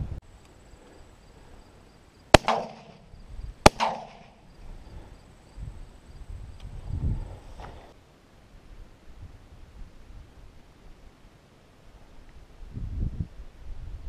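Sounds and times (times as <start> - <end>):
shotgun shots: 2.3 - 4.4.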